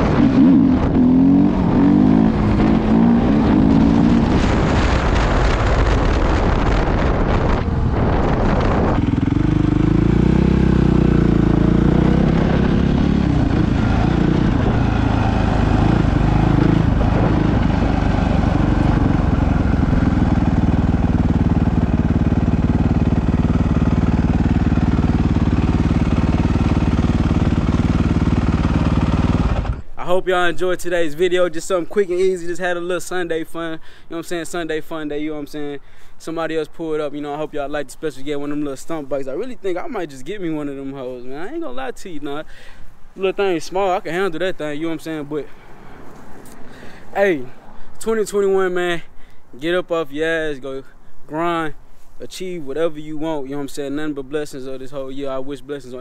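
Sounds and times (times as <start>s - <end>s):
dirt bike engine revving: 0.0s - 29.9s.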